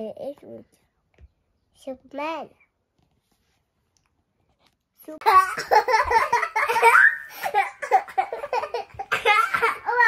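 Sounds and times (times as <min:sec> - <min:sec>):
young children laughing and squealing: 0:05.2 - 0:10.0.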